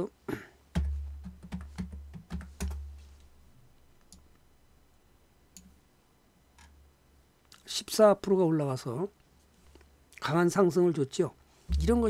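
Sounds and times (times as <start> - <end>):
low hum: 11.7 - 12.0.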